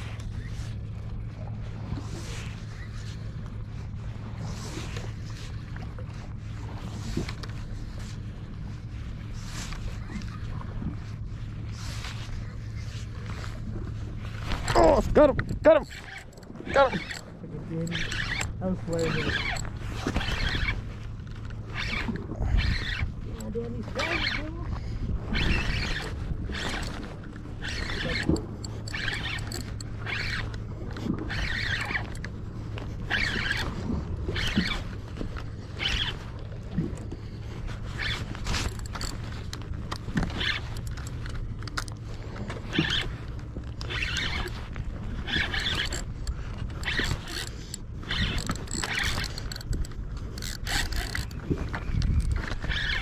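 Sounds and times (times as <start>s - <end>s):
steady low rumble: 0.0s - 40.2s
fishing reel gears whirring: 0.0s - 53.0s.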